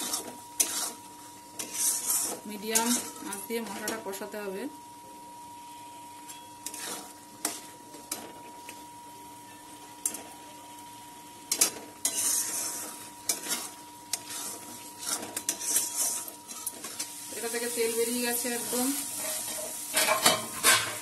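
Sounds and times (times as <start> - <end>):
metal spatula scraping a pan: 0.0 - 3.4, 6.6 - 7.7, 11.6 - 21.0
paste sizzling in oil: 0.0 - 3.4, 11.9 - 21.0.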